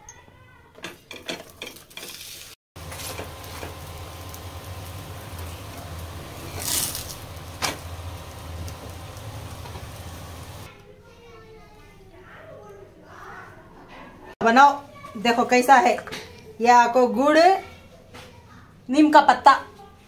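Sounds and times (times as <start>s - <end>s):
flatbread sizzling in ghee: 1.8s - 10.7s.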